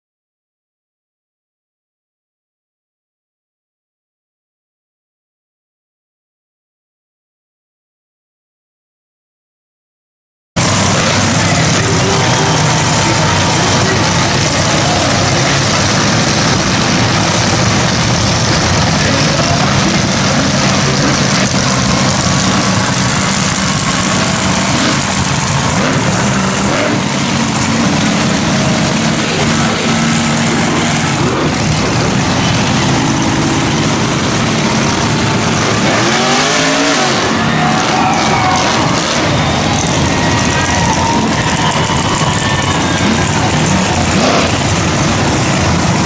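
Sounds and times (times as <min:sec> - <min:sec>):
monster truck engines running: 0:10.6 - 0:46.0
truck engine revving up: 0:10.6 - 0:46.0.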